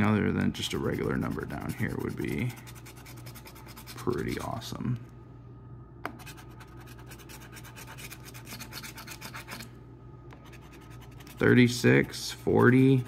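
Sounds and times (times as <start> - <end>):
coin scraping scratch card: 1.2 - 4.6, 6.2 - 9.7.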